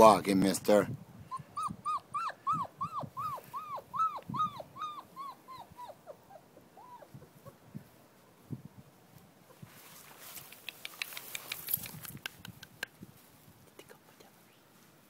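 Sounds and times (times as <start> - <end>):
puppy whimpering: 1.3 - 7.6.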